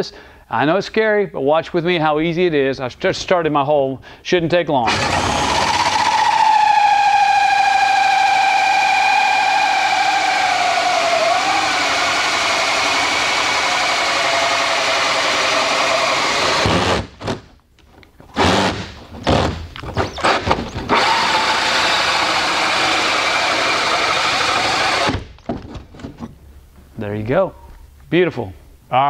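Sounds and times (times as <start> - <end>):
drill hole saw cutting whir: 4.8 - 17.1, 20.2 - 25.2.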